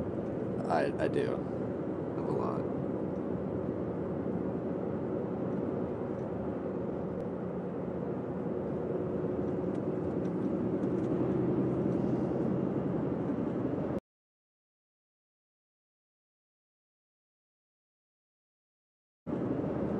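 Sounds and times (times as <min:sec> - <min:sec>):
car road and engine noise: 0:00.0 - 0:14.0, 0:19.3 - 0:19.9.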